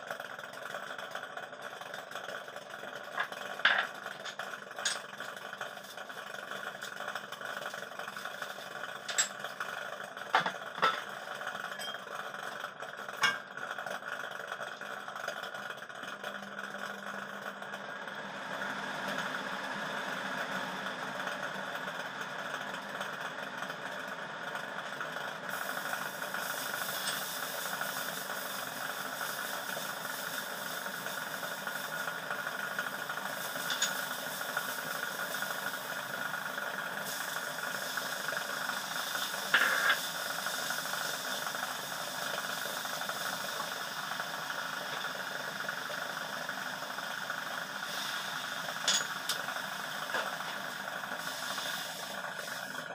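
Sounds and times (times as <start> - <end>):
steady mechanical hum: 0.0 - 52.9
garlic sizzling in hot oil: 25.5 - 52.8.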